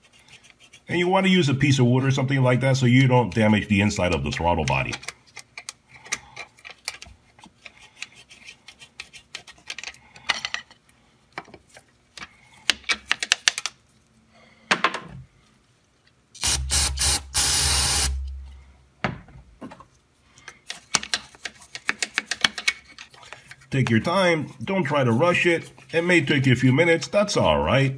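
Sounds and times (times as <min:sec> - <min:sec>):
brush scrubbing: 0:00.0 - 0:01.3, 0:23.1 - 0:26.6
aerosol spray hissing: 0:16.4 - 0:18.2.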